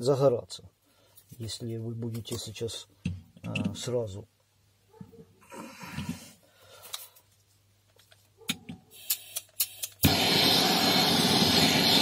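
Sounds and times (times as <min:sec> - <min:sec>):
sharp clicks: 0:08.5 - 0:10.2
gas torch hissing: 0:08.9 - 0:12.0.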